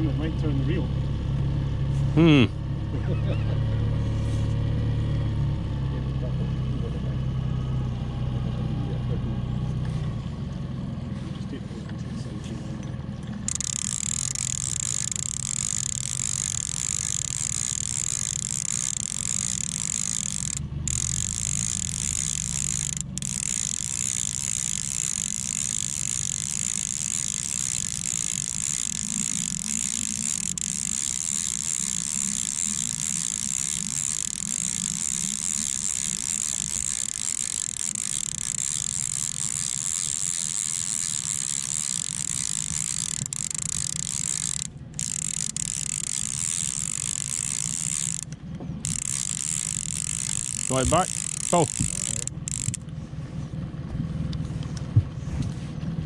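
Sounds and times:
fishing reel ratchet buzzing: 0:13.4 - 0:52.9.

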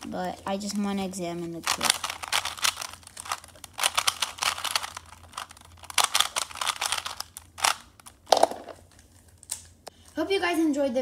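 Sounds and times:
plastic puzzle cube clicking: 0:01.7 - 0:07.9
cube knocked down on wooden floor: 0:08.3 - 0:08.8.

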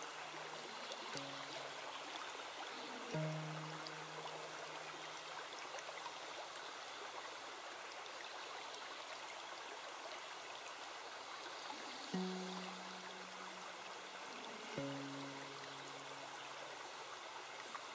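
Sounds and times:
woodland stream rushing: 0:00.0 - 0:17.9
soft low musical note: 0:03.1 - 0:05.0, 0:12.2 - 0:13.8.

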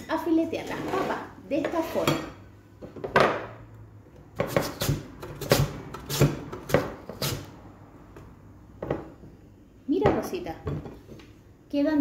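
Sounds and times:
potato sliced on grater: 0:04.4 - 0:07.5.

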